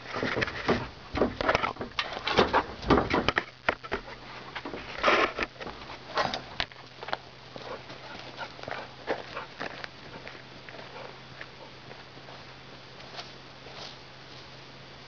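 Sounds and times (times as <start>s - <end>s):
faint low hum: 0.0s - 15.0s
dog sniffing and breathing: 7.6s - 12.5s.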